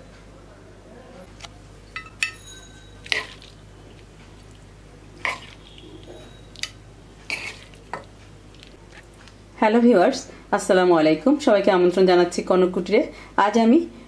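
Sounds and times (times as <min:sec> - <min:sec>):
spoon clinking on pan and plate: 0:01.9 - 0:03.6.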